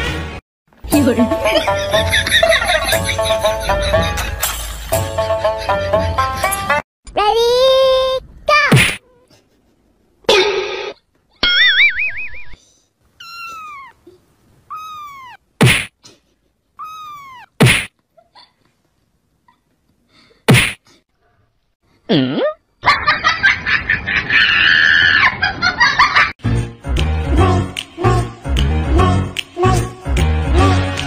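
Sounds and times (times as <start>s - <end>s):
sharp slaps: 8.7s - 9.0s, 15.6s - 16.0s, 17.6s - 17.9s, 20.5s - 20.8s.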